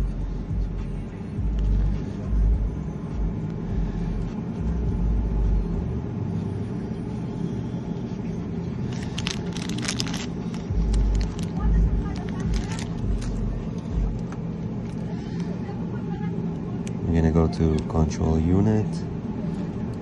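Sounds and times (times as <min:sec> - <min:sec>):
car engine idling: 0:00.0 - 0:20.0
plastic bag crinkling: 0:08.8 - 0:13.4.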